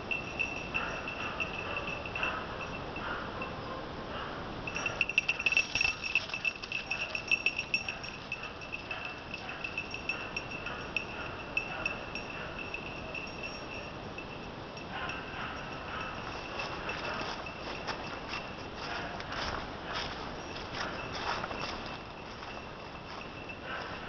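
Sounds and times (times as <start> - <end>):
dog's bell jangling: 0.0 - 3.8, 4.6 - 24.0
faint dog barking: 0.8 - 6.0, 6.8 - 13.3, 14.9 - 17.5, 18.8 - 20.2, 23.6 - 24.0.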